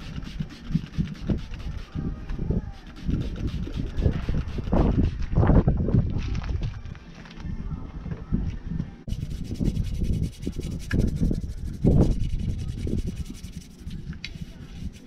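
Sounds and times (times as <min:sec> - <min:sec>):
brush scrubbing wheel: 0:00.0 - 0:02.0, 0:02.8 - 0:05.3, 0:09.1 - 0:15.0.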